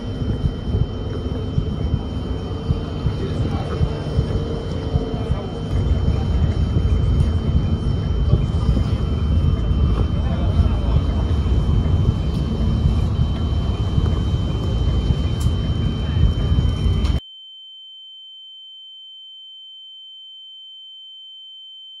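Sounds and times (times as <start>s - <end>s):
loud deep rumbling: 0.0s - 17.2s
steady high-pitched tone: 0.0s - 21.6s.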